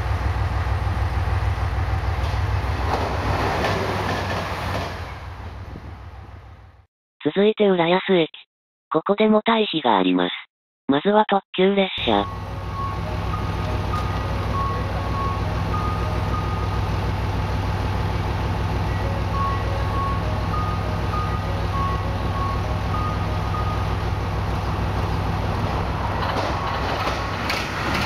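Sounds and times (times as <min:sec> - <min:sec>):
diesel railcar engine idling: 0:00.0 - 0:03.2, 0:12.1 - 0:28.0
approaching diesel train rumble: 0:00.0 - 0:06.9, 0:12.2 - 0:28.0.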